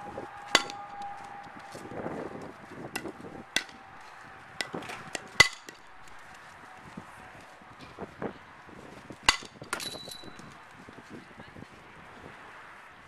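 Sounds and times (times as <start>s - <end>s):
bat cracking a softball: 0.1s - 6.5s, 9.1s - 10.6s.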